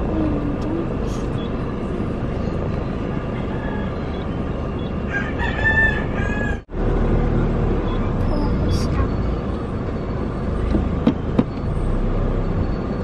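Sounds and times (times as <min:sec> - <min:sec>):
car cabin road and engine noise: 0:00.0 - 0:13.0
rooster crowing: 0:03.3 - 0:04.3, 0:05.0 - 0:06.7.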